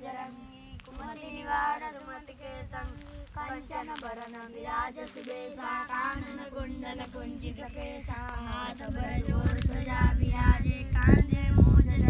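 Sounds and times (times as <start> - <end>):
child and women singing: 0.0 - 12.0.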